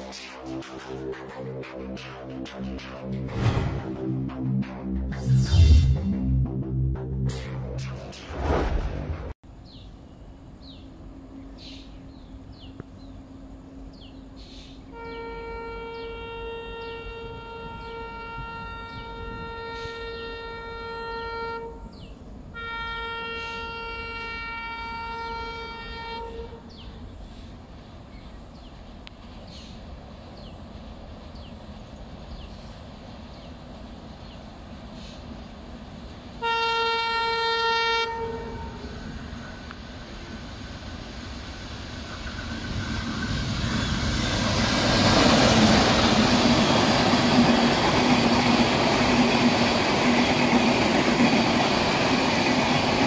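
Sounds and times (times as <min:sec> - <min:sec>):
train horn blasts: 0:14.9 - 0:26.8, 0:36.4 - 0:39.0.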